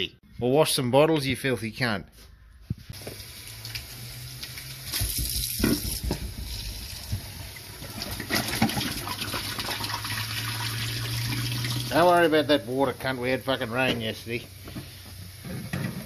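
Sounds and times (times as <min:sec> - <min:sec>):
water splashing off bottles: 0:03.0 - 0:12.0.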